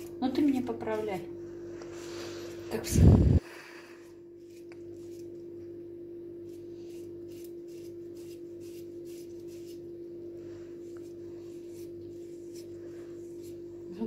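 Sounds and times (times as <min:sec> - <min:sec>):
steady hum: 0:00.0 - 0:14.0
avocado grated on plastic grater: 0:06.5 - 0:09.9.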